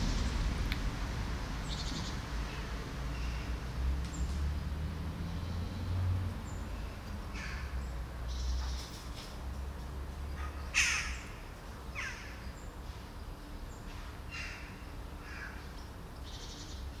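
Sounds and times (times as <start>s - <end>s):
low background rumble: 0.0s - 8.7s
crow cawing: 10.4s - 11.4s.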